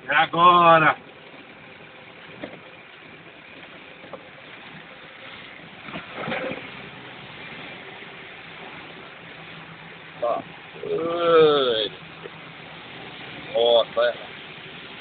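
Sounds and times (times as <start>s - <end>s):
engine and tyre noise: 0.0s - 15.0s
vehicle knocks over ruts: 5.7s - 7.6s.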